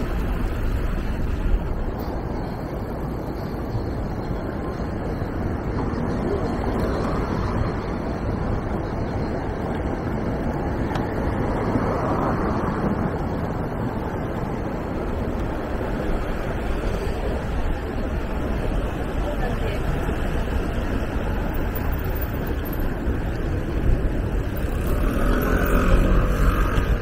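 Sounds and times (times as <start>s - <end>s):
road traffic rumble: 0.0s - 27.0s
wind noise on microphone: 0.0s - 27.0s.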